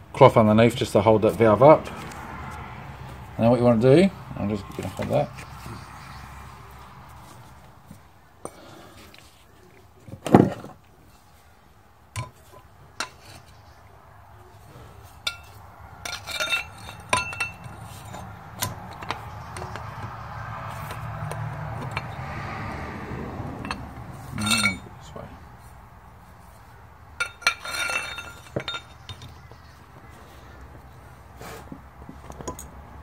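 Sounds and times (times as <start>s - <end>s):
metal parts clinking: 15.2s - 20.0s, 24.4s - 24.9s, 27.2s - 29.4s.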